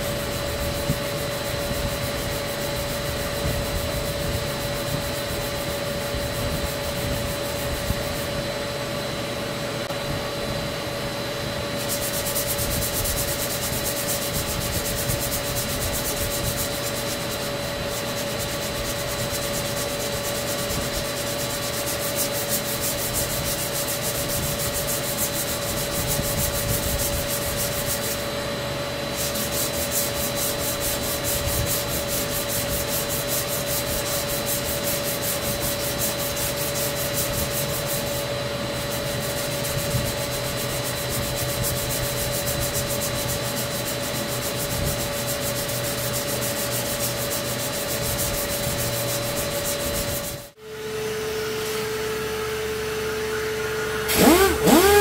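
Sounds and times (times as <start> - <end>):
orbital sander grinding: 11.7 - 28.4, 29.0 - 50.6, 53.8 - 55.0.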